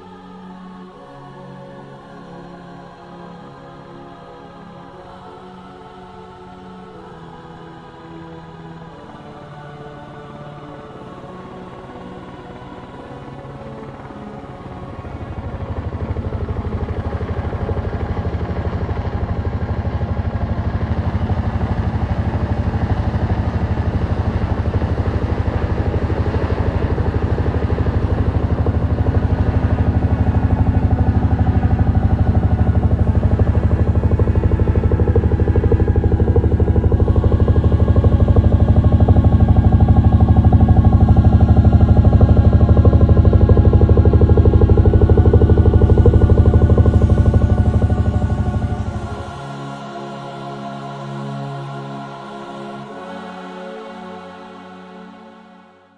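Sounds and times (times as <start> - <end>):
rotor chop: 23.5 - 49.4.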